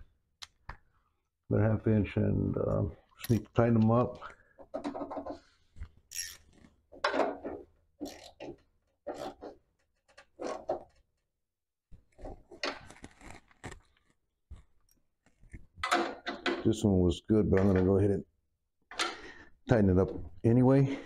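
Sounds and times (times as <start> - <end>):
wrench clicking and scraping: 6.1 - 7.4, 8.0 - 11.0.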